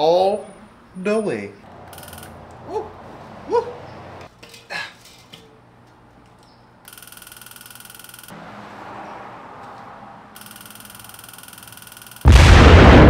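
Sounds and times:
steady high buzz: 0.0s - 2.6s, 6.7s - 8.4s, 10.3s - 12.7s.

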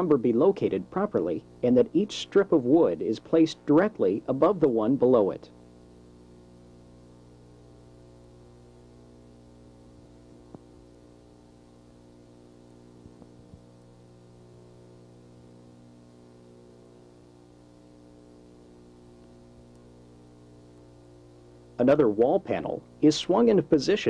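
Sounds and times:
faint electrical hum: 0.0s - 24.0s
small ticks: 13.0s - 13.7s, 19.2s - 20.0s.

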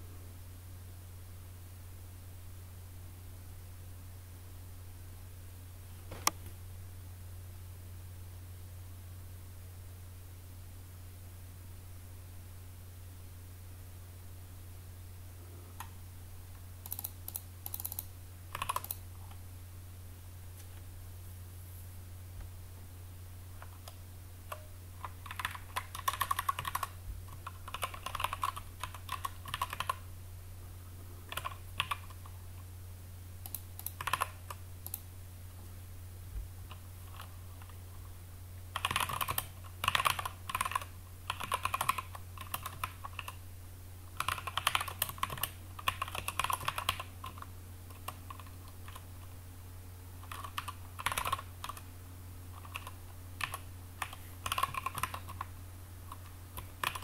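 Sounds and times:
keyboard typing: 16.8s - 19.0s, 23.6s - 30.0s, 31.3s - 32.4s, 33.4s - 35.0s, 36.7s - 37.8s, 38.7s - 43.4s, 44.2s - 49.1s, 50.2s - 51.8s, 52.5s - 55.5s, 56.1s - 57.0s.

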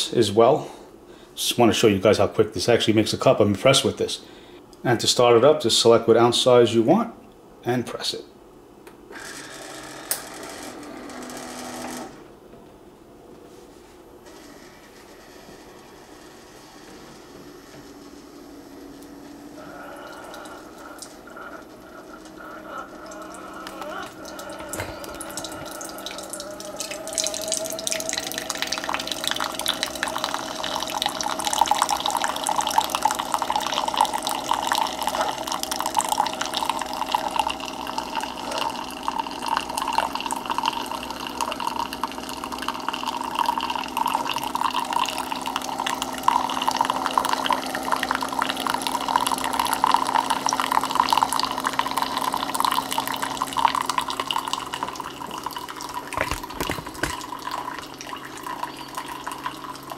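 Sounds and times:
coffeemaker humming: 9.1s - 12.4s, 14.3s - 59.9s
coffee streaming into cup: 14.3s - 59.9s.

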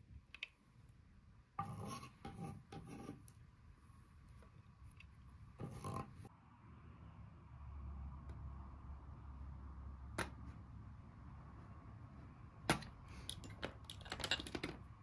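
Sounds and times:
hard objects knocking: 12.7s - 15.0s.

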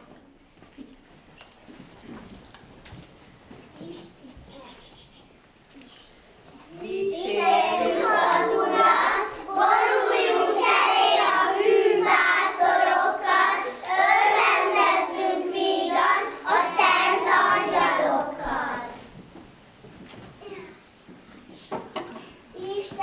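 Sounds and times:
children singing: 6.8s - 19.0s.

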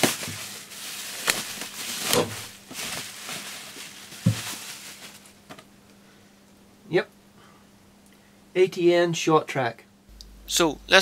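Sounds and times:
bubble wrap rustling: 0.0s - 5.6s.

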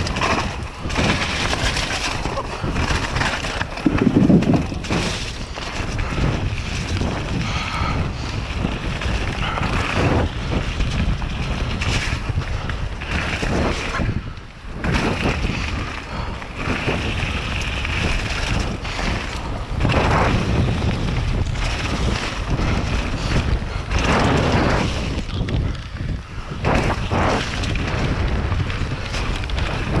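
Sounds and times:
bike tyres crunching over gravel: 0.0s - 30.0s
wind rushing across microphone: 0.0s - 30.0s.

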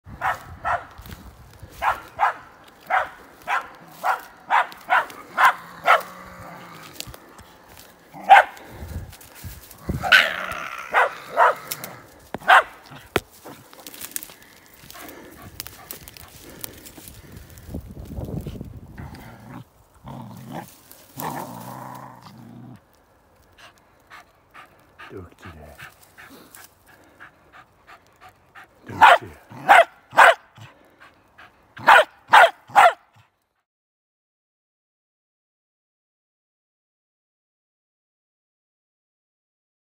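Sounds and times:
branches and twigs rustling: 0.1s - 33.5s
dog barking: 0.2s - 0.9s, 1.8s - 6.2s, 8.2s - 8.6s, 10.9s - 11.7s, 12.4s - 13.9s, 28.9s - 30.7s, 31.8s - 33.2s.

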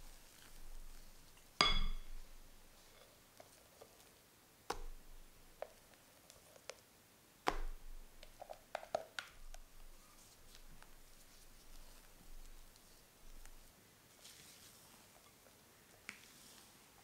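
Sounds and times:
spatula tapping glass bowl: 1.6s - 2.2s.

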